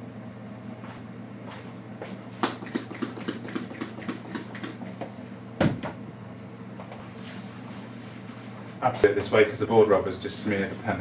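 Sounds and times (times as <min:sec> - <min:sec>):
tissue rubbing on whiteboard: 0:07.0 - 0:08.8.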